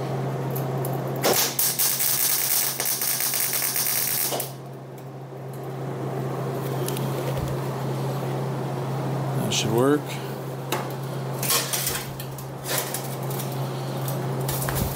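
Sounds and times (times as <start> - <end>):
steady low hum: 0.0 - 14.9
welder arc crackling: 1.2 - 4.7.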